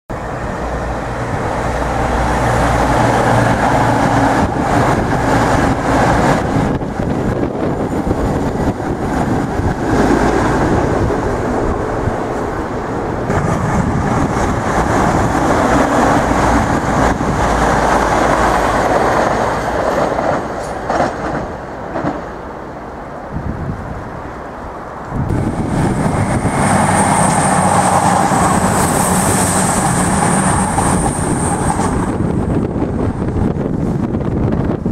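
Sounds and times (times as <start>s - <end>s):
train wheels rumbling on rails: 0.1s - 34.9s
diesel engines droning: 24.0s - 34.4s.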